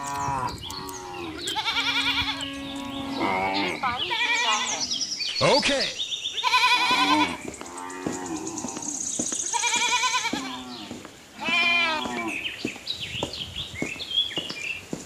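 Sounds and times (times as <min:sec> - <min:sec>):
cattle mooing: 0:00.0 - 0:04.8, 0:06.4 - 0:09.0, 0:10.0 - 0:12.4.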